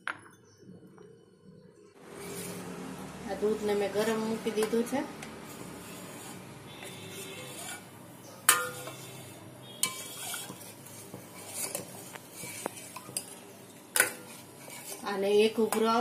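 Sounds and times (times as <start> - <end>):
spoon scraping metal pot: 2.0 - 2.8, 3.4 - 16.0
spoon clinking on pot: 8.4 - 9.1, 9.8 - 10.6.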